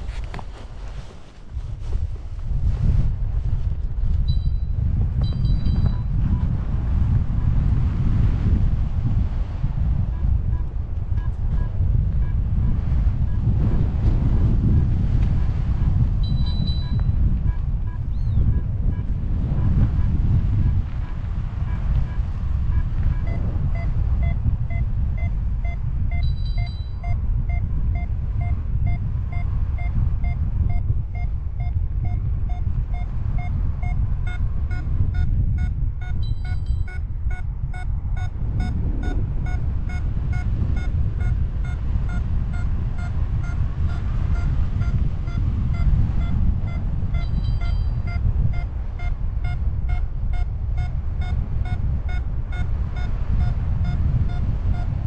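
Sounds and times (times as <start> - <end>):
wind rushing over microphone: 0.0 - 55.0
variometer beeping: 4.2 - 6.5, 16.2 - 20.8, 21.6 - 55.0.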